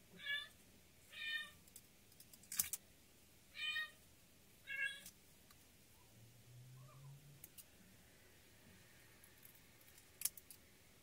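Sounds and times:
cat meowing: 0.1s - 1.6s, 4.6s - 5.1s.

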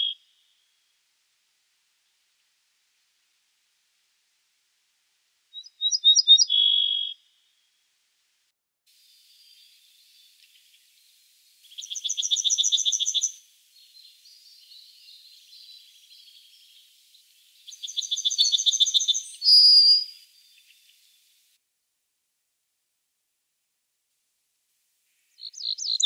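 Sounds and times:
faint bird chirping: 0.0s - 0.9s, 5.5s - 7.8s, 9.0s - 21.5s, 25.1s - 26.0s
bird singing fast trills: 5.6s - 7.2s, 11.7s - 16.9s, 17.7s - 21.0s, 25.4s - 26.0s.

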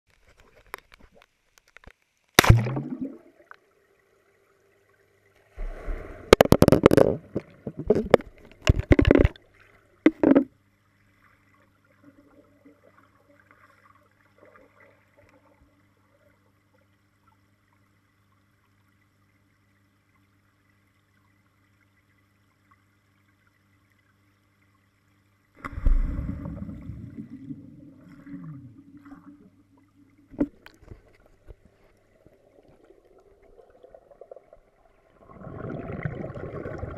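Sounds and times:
faint low hum: 0.1s - 36.9s
underwater plunge: 2.4s - 3.4s, 5.6s - 9.4s, 25.6s - 36.9s
underwater bubbling and gurgling: 2.4s - 36.9s.

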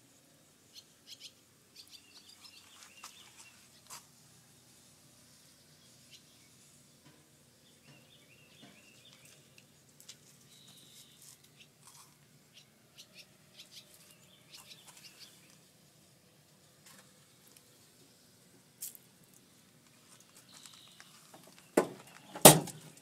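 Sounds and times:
distant bird chirps: 0.6s - 3.8s, 5.4s - 15.6s, 20.1s - 23.0s.

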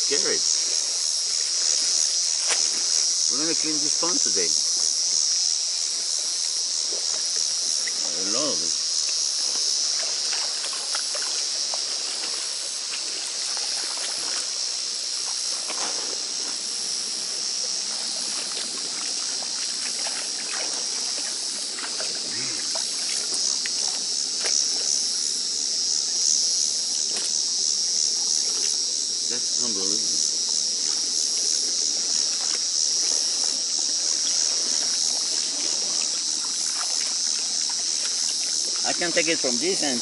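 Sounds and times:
high-pitched insect chorus: 0.0s - 40.0s
water splashing and trickling: 0.0s - 40.0s
knocks in shallow water: 9.1s - 14.6s, 18.0s - 25.0s, 32.1s - 39.3s.

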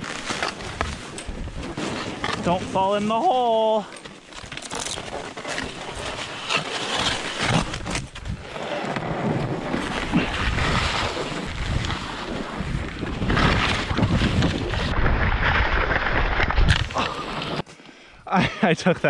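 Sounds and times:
skis scraping through snow: 0.0s - 17.7s
wind on microphone: 9.4s - 17.0s.

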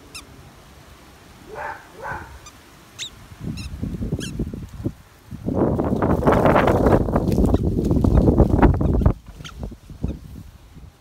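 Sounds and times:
rustling: 2.0s - 10.6s.

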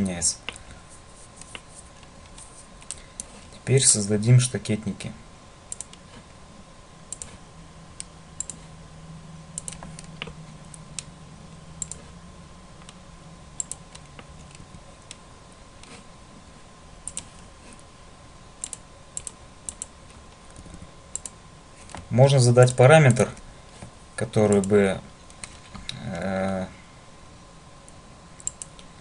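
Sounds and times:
faint electrical tone: 0.0s - 29.0s
mouse and keyboard clicks: 7.1s - 7.4s, 8.0s - 8.6s, 9.6s - 11.1s, 17.0s - 17.4s, 18.6s - 21.3s.

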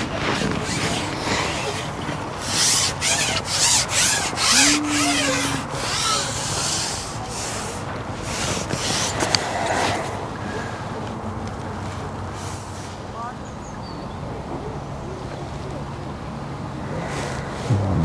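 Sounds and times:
fishing pole sections rubbing: 2.4s - 7.7s
short low hum: 17.6s - 18.0s.

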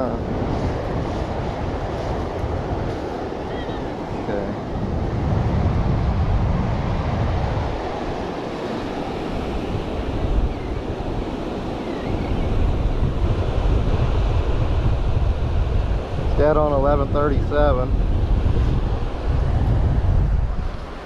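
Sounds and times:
surf washing: 0.0s - 21.0s
wind buffeting microphone: 0.0s - 21.0s.

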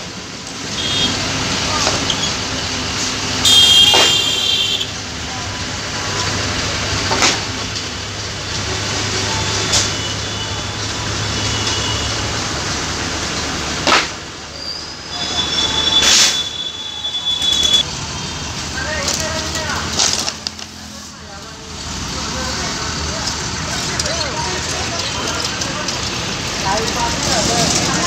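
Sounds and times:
vehicle hum: 0.0s - 28.0s.

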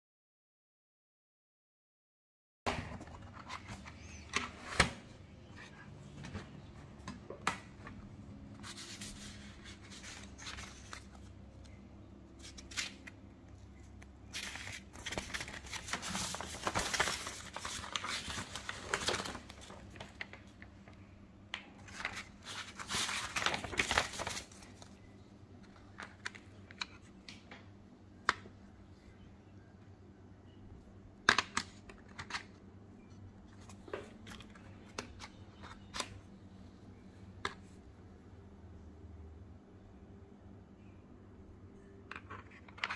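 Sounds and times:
paper leaflet rustling: 8.6s - 11.8s, 13.8s - 20.6s, 21.8s - 25.1s.

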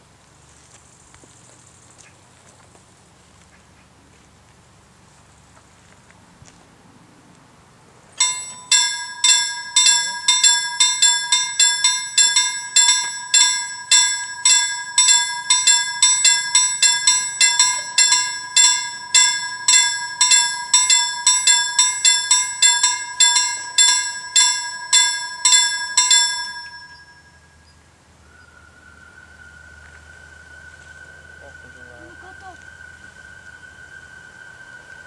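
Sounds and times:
level crossing warning bell: 8.2s - 27.7s.

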